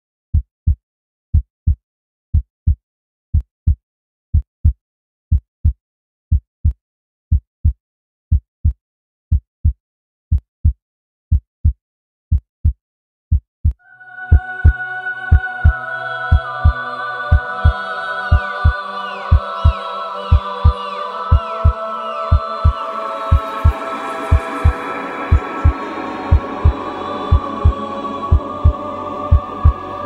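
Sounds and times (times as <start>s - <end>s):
heartbeat thumps: 21.6s - 29.8s.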